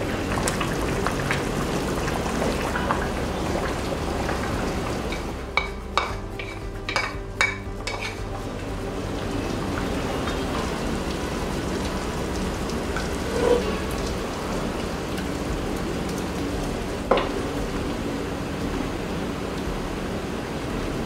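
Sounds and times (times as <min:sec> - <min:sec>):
broth simmering and bubbling: 0:00.0 - 0:21.0
wooden spoon stirring: 0:00.6 - 0:09.0, 0:12.4 - 0:14.0.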